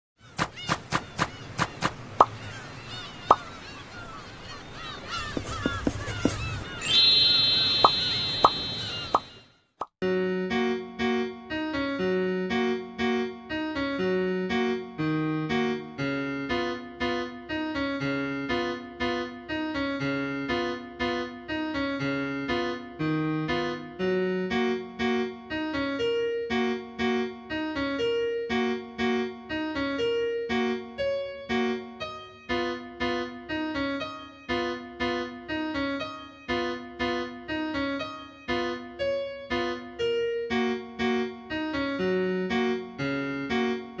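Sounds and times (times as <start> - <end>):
gentle keyboard melody: 10.0 - 44.0.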